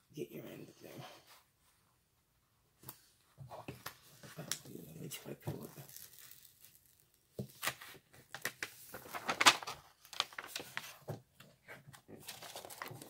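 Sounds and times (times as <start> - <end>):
paper rustling and crinkling: 5.4 - 13.0.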